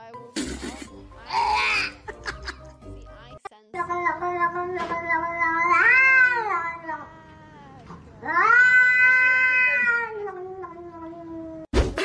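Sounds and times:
cat yowling: 5.2s - 7.1s, 8.2s - 11.7s.

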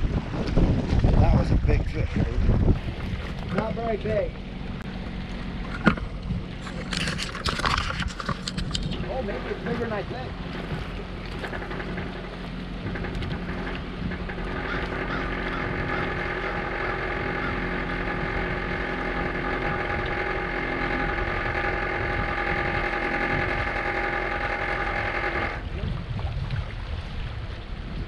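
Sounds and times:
fishing reel drag buzzing: 12.9s - 25.6s.

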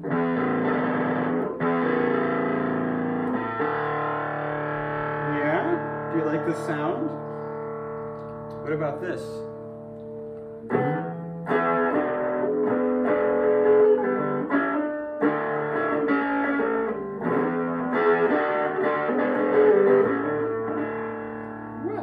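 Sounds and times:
electric guitar chords and notes: 0.0s - 22.0s.

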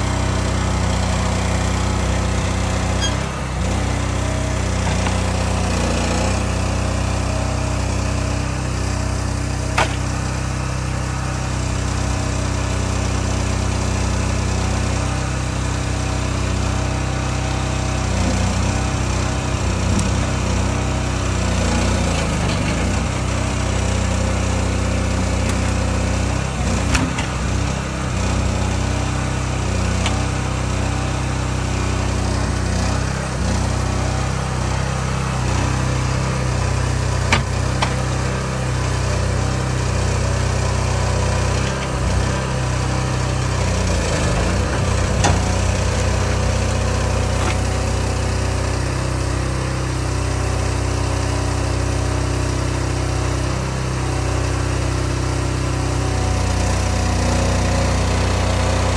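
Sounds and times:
log loader engine running: 0.0s - 58.9s
sharp knocks: 9.8s - 10.1s.

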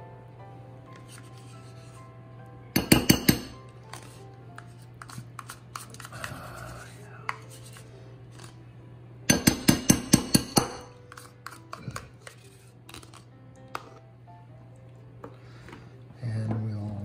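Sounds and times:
spoon tapping glass bowl: 2.8s - 3.6s, 9.3s - 10.9s
spoon scraping plastic carton: 3.9s - 6.4s.

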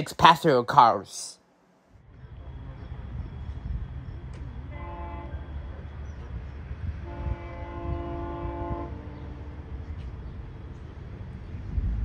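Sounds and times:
low train rumble: 1.5s - 12.0s
distant train horn: 4.6s - 5.9s, 6.8s - 10.0s.

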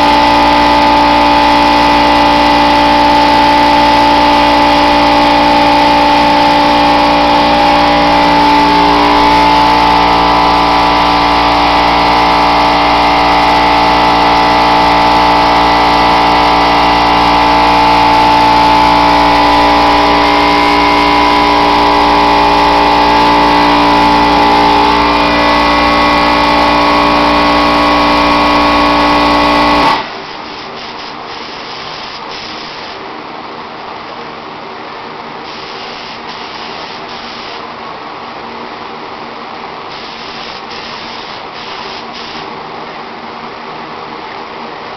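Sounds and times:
air compressor running: 0.0s - 33.2s, 35.4s - 37.8s, 39.9s - 43.0s
steady hiss: 30.2s - 33.1s, 35.4s - 37.7s, 39.9s - 42.6s.

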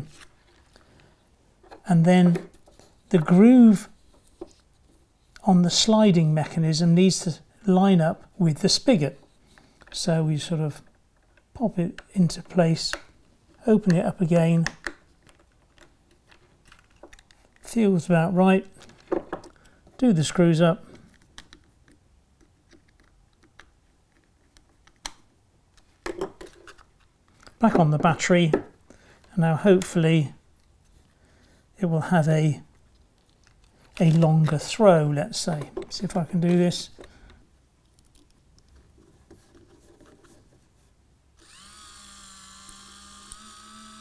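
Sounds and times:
small clicks and rustles: 14.8s - 17.7s, 20.9s - 27.6s, 32.7s - 34.6s, 36.9s - 40.7s.

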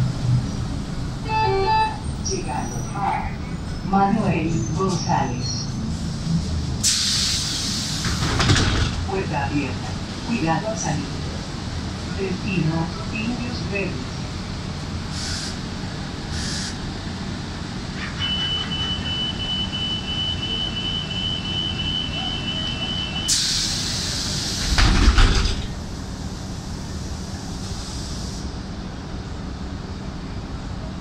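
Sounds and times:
bus engine idling: 0.0s - 31.0s
air hissing: 6.8s - 8.2s, 15.1s - 15.6s, 16.3s - 16.8s
bus doors thudding shut: 6.9s - 9.1s, 23.2s - 25.8s.

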